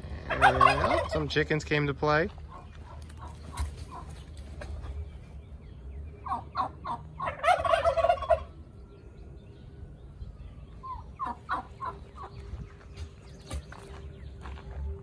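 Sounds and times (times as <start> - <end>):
turkeys gobbling: 0.0 - 1.6, 2.2 - 5.4, 6.2 - 8.7, 10.7 - 12.5.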